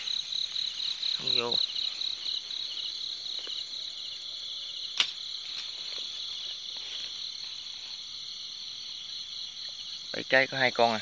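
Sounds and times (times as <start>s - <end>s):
crickets chirring: 0.0s - 11.0s
sharp click: 5.0s - 5.2s.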